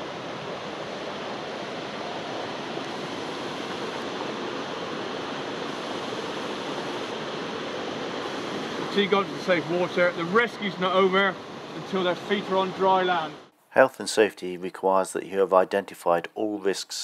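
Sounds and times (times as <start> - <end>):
rushing river and waterfall: 0.0 - 13.5.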